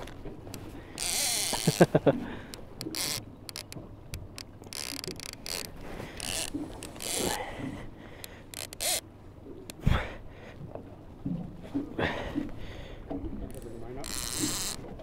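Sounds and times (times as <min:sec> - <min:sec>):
fishing reel ratchet clicking: 0:01.0 - 0:01.8, 0:02.8 - 0:07.4, 0:08.5 - 0:09.0, 0:13.5 - 0:14.8.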